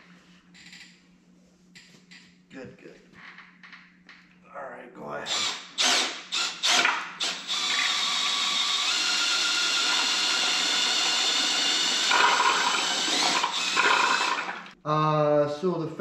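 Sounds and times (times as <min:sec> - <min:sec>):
electric drill motor whine: 0:05.3 - 0:14.8.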